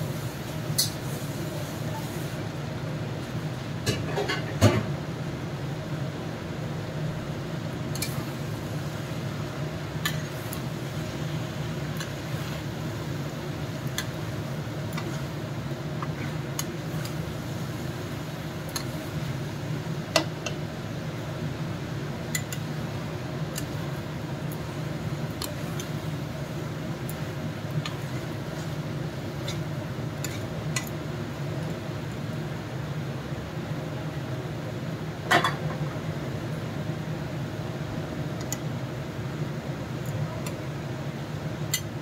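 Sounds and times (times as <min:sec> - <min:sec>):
steady low hum: 0:00.0 - 0:42.0
spatula scraping a pan: 0:27.9 - 0:30.5.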